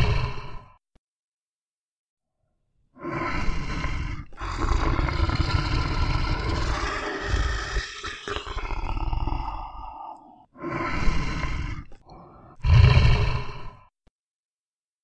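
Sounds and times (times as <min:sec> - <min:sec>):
bear roaring and growling: 0:00.0 - 0:00.8, 0:03.0 - 0:13.9.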